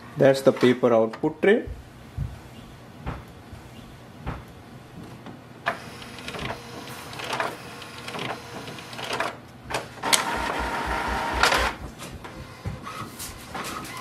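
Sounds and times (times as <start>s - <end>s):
printer mechanism whirring: 5.6s - 14.0s
printer motor running: 5.7s - 14.0s.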